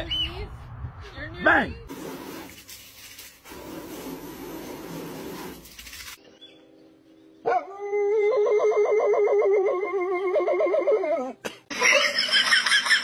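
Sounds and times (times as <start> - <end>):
dog howling: 7.5 - 11.3.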